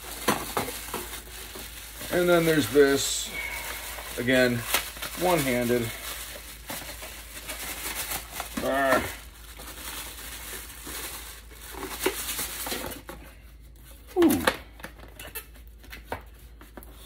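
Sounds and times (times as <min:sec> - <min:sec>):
plastic bag crinkling: 0:00.0 - 0:13.2
person humming: 0:14.1 - 0:14.6.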